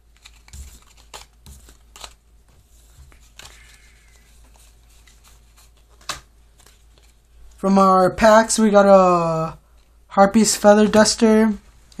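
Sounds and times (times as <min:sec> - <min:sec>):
trading cards rustling: 0:00.0 - 0:07.6.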